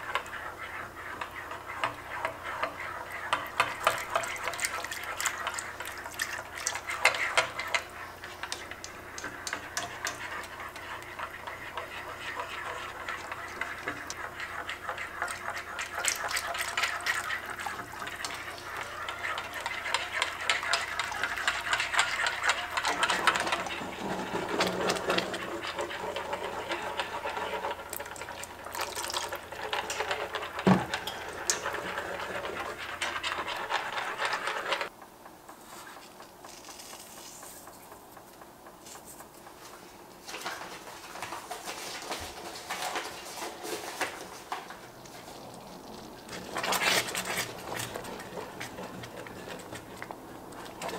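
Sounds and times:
whisk knocking against pot: 0:00.0 - 0:27.6
whisk beating thick sauce: 0:00.0 - 0:34.9, 0:41.6 - 0:50.9.

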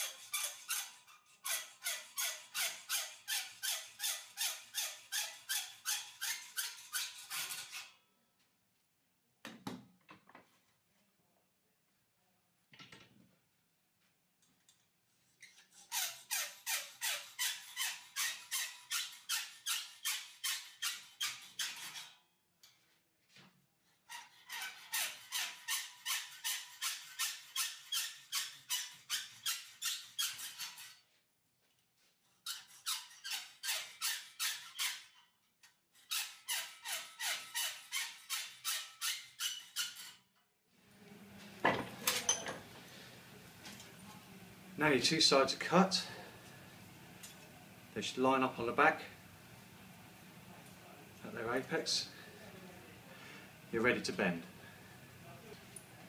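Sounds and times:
hacksaw cutting sheet metal: 0:00.0 - 0:08.0, 0:15.4 - 0:22.2, 0:24.1 - 0:31.0, 0:32.4 - 0:40.3.

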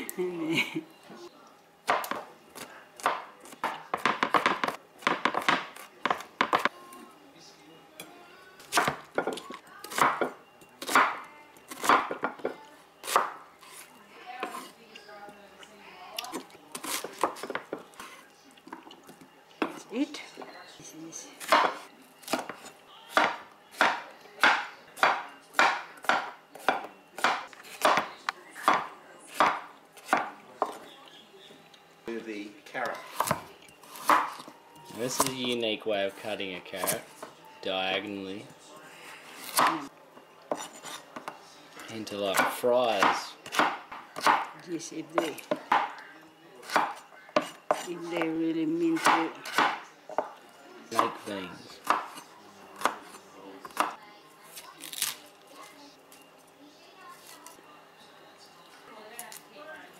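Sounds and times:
knife chopping on wooden board: 0:03.0 - 0:06.7, 0:08.7 - 0:13.4, 0:21.4 - 0:30.8, 0:34.0 - 0:34.4, 0:39.4 - 0:39.8, 0:42.3 - 0:44.5, 0:45.2 - 0:46.0, 0:46.6 - 0:47.9, 0:49.0 - 0:50.3, 0:51.8 - 0:52.2.

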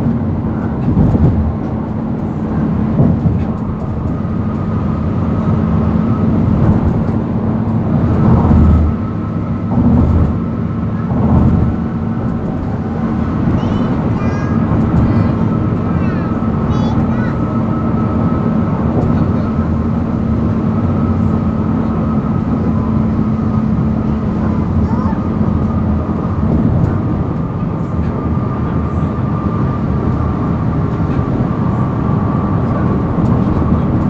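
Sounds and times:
car road and engine noise: 0:00.0 - 0:34.0.

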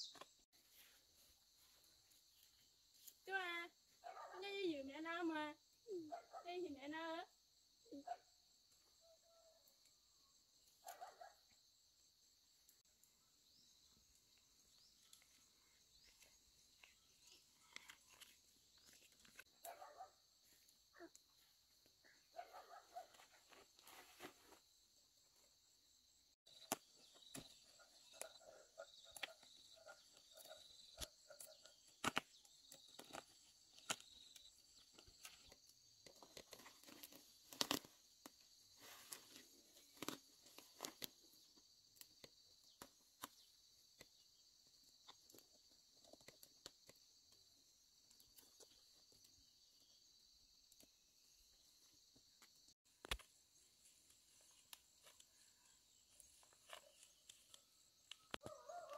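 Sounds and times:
stems snapping: 0:35.5 - 0:38.4
leaves rustling: 0:38.8 - 0:41.0.

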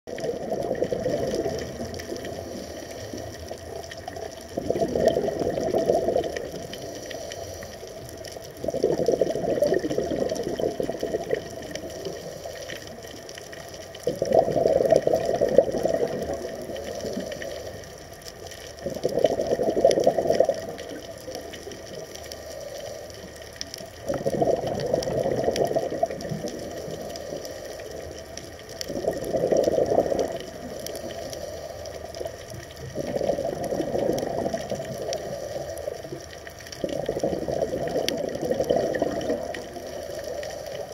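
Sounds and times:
exhaled bubbles underwater: 0:00.1 - 0:40.9
water hiss: 0:01.0 - 0:13.6, 0:29.0 - 0:40.9.

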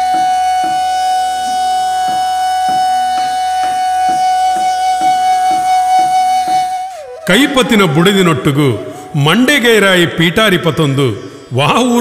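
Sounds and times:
steady drum beat: 0:00.0 - 0:08.3
long held note: 0:00.0 - 0:09.1.

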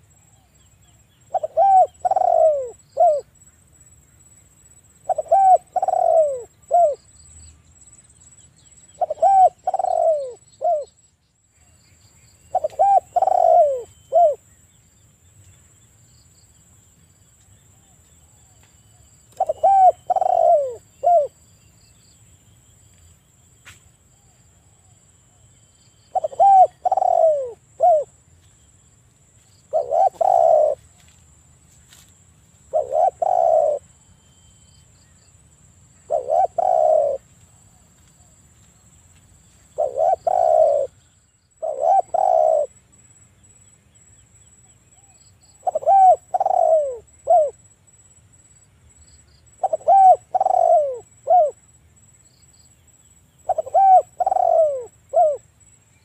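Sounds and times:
dove cooing: 0:01.2 - 0:03.3, 0:05.0 - 0:07.0, 0:09.0 - 0:10.9, 0:12.5 - 0:14.4, 0:19.3 - 0:21.4, 0:26.1 - 0:28.2, 0:29.7 - 0:31.0, 0:32.7 - 0:34.0, 0:36.0 - 0:37.3, 0:39.8 - 0:41.0, 0:41.6 - 0:42.8, 0:45.0 - 0:47.6, 0:49.6 - 0:51.6, 0:53.4 - 0:55.4.

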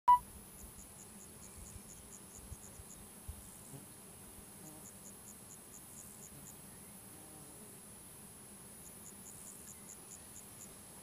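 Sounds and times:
cricket chirping: 0:08.7 - 0:11.0.

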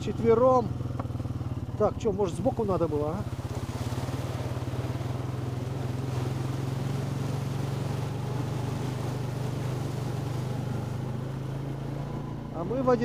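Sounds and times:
quad bike engine running: 0:00.0 - 0:13.0.

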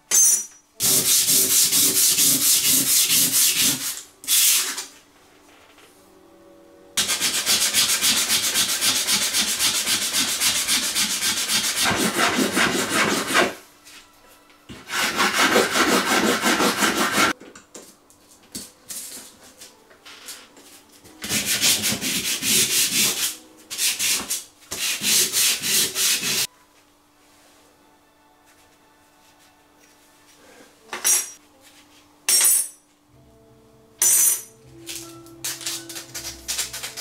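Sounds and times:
metal scraping on sandpaper: 0:07.0 - 0:13.6.

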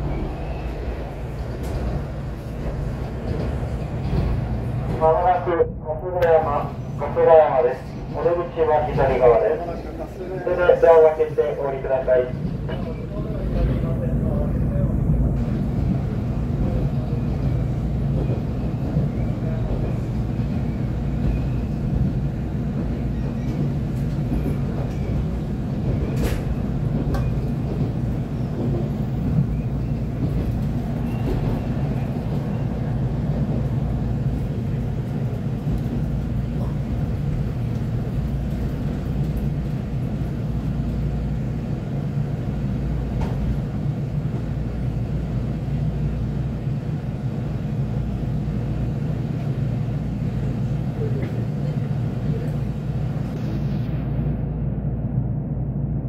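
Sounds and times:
train car rumbling on rails: 0:00.0 - 0:56.0.

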